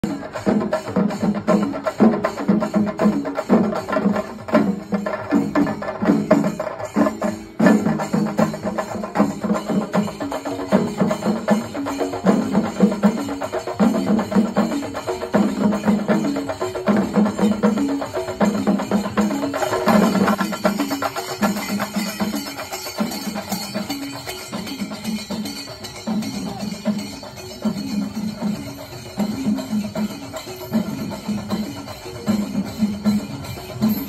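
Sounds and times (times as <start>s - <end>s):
percussion-led music: 0.0s - 34.0s.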